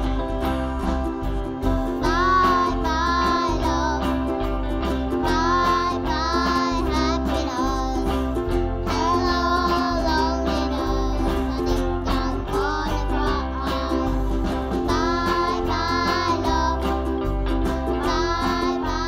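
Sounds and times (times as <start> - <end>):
strummed ukulele: 0.0 - 19.0
child singing into microphone: 2.0 - 4.2, 5.2 - 8.2, 8.9 - 16.9, 18.0 - 19.0.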